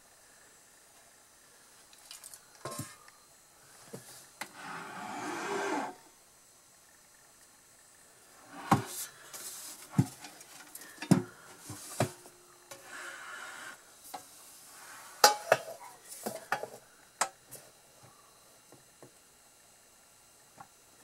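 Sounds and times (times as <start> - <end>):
scraping rub: 4.5 - 6.0, 12.8 - 13.8.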